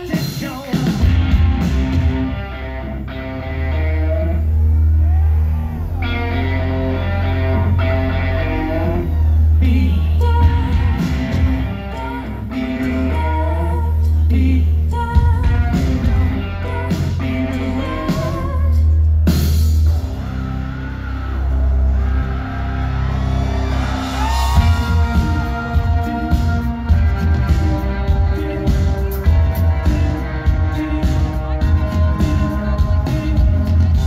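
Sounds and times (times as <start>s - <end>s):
live rock band: 0.0s - 34.0s
person singing: 6.1s - 19.2s, 24.1s - 34.0s.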